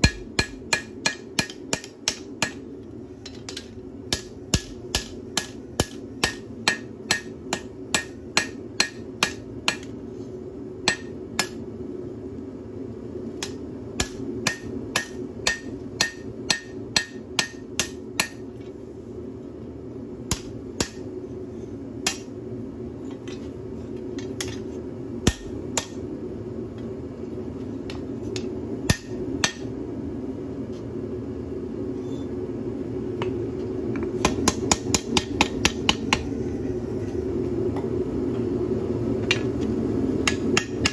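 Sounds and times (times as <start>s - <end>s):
hammer striking on anvil: 0.0s - 2.6s, 3.5s - 9.9s, 10.9s - 11.6s, 13.4s - 18.4s, 20.3s - 21.1s, 22.0s - 22.3s, 25.2s - 26.0s, 28.4s - 29.7s, 34.2s - 36.2s, 40.2s - 40.9s
steady low hum: 0.0s - 40.9s.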